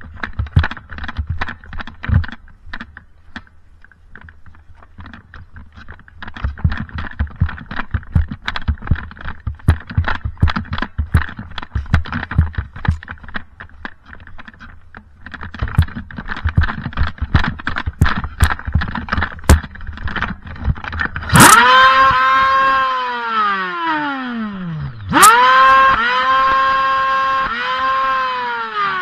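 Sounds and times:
clatter of knocks and clicks: 0.0 - 22.8
low thumps: 6.4 - 14.1, 15.3 - 22.8.

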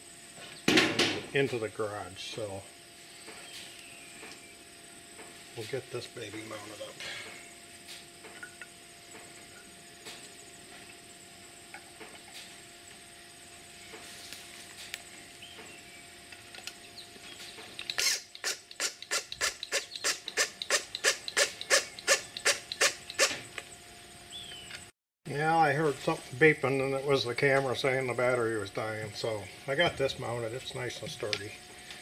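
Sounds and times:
cordless drill clicking: 17.8 - 23.4.

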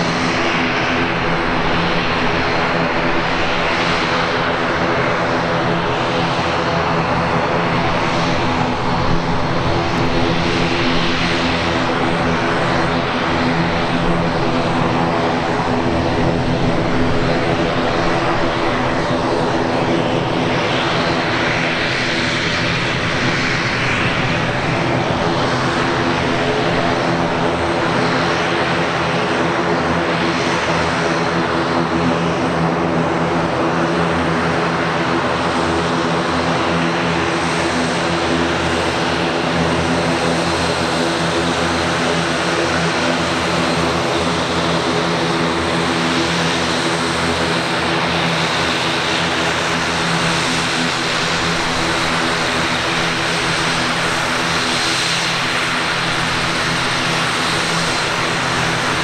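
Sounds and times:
turboprop propeller drone: 0.0 - 59.0.

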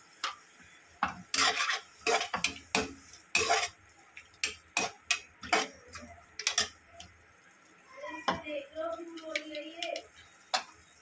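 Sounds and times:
metal spatula scraping metal pan: 1.3 - 3.8, 4.4 - 6.8.

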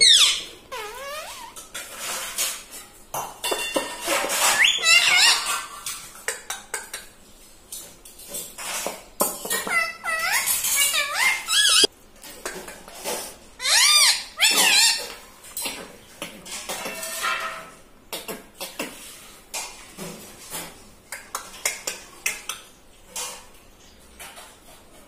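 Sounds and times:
parakeet chirping calls: 0.0 - 1.6, 4.4 - 5.6, 9.7 - 11.9, 13.6 - 15.1.

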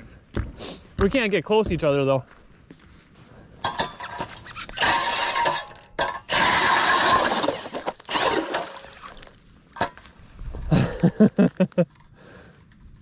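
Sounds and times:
ice auger grinding through ice: 4.0 - 9.3.

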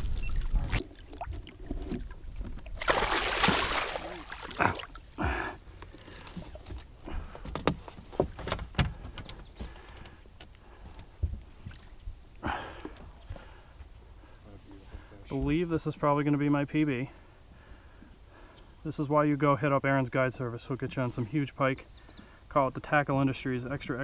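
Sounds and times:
fish splashing in water: 2.7 - 5.0
knocks and clicks against boat: 5.7 - 11.8.

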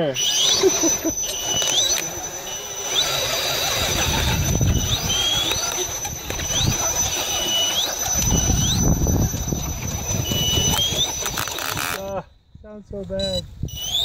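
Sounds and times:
electric motors whining: 0.0 - 12.4, 13.1 - 14.0.

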